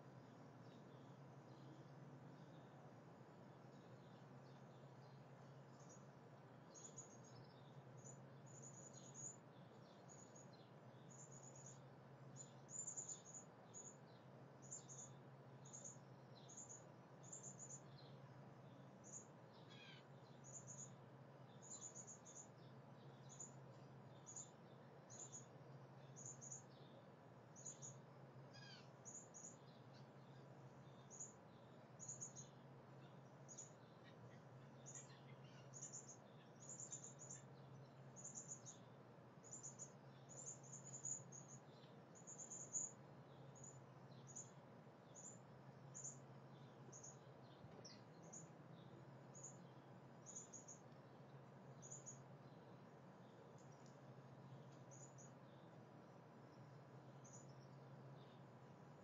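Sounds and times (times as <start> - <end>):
faint low hum: 0.0 - 59.0
falling bird calls: 14.6 - 27.0, 27.6 - 44.6.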